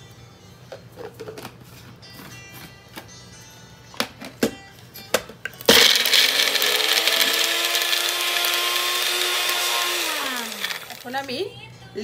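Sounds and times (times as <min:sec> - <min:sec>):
blender motor whining: 0:05.7 - 0:11.3.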